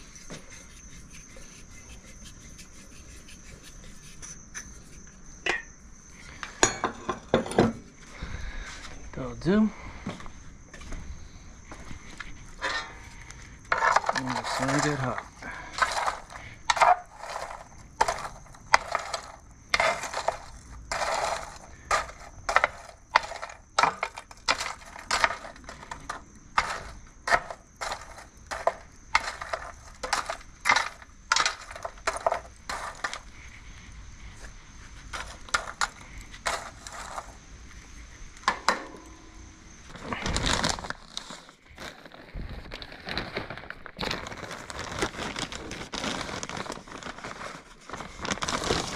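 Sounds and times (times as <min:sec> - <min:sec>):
charcoal clinking and scraping: 0:12.3 - 0:33.8, 0:35.0 - 0:37.4, 0:38.4 - 0:48.9.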